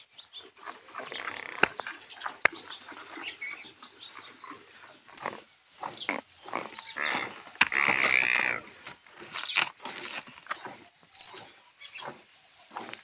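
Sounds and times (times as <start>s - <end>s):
metal chain clinking: 6.3s - 8.6s, 9.2s - 11.6s.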